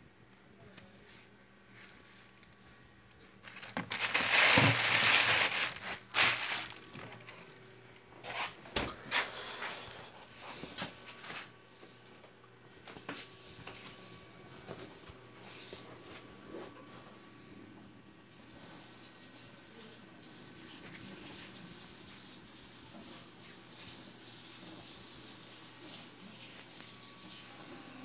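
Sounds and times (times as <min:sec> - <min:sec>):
loud crinkling and rustling: 0:03.2 - 0:08.6.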